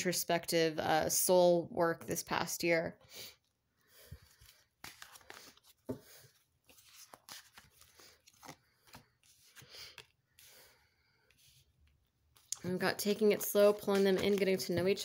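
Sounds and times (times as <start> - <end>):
cards shuffling: 4.2 - 10.6, 13.2 - 15.0.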